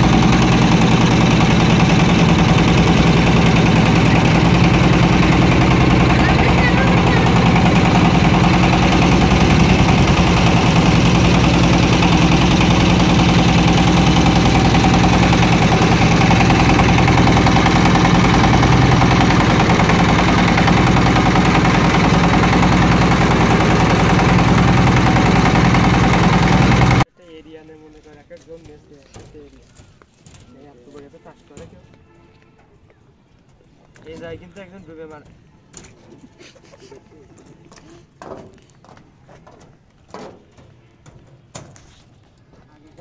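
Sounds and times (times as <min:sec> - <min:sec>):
boat engine droning: 0:00.0 - 0:27.1.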